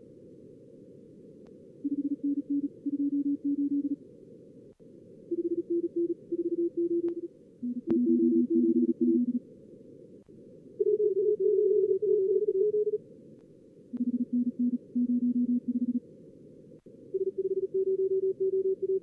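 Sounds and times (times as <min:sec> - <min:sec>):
morse code beeps: 0:01.9 - 0:04.0, 0:05.3 - 0:09.4, 0:14.0 - 0:16.0, 0:17.1 - 0:19.0.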